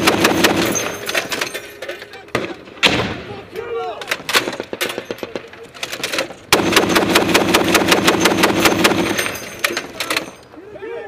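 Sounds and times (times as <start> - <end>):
gunshots: 0.0 - 1.3, 2.3 - 3.4, 6.5 - 9.4
machine gun automatic fire: 0.0 - 1.4, 6.0 - 10.2.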